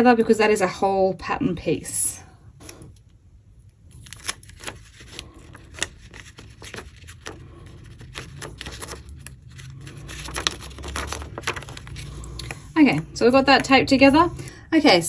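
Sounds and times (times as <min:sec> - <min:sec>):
paper rustling and crackling: 0:03.9 - 0:12.8.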